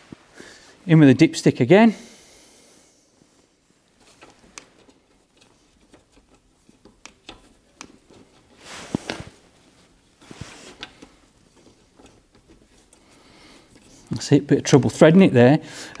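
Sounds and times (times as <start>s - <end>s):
rustling: 3.2s - 14.2s.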